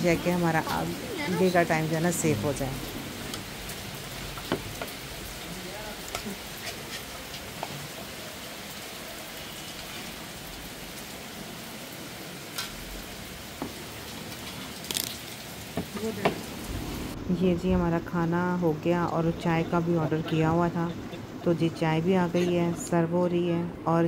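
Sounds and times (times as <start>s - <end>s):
steady rain falling: 0.0s - 23.7s.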